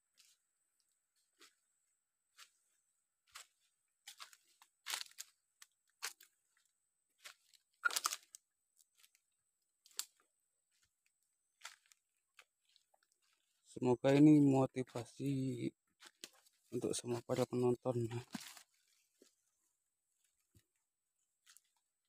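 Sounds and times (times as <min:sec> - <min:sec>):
footsteps crunching dry leaves: 0:02.3 - 0:09.2, 0:09.8 - 0:14.4, 0:15.9 - 0:19.5.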